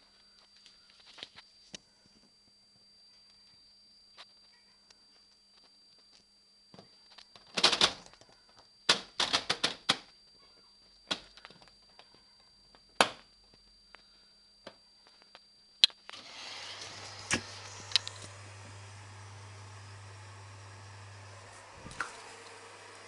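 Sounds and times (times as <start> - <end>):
water inlet hiss: 16.1 - 23.0.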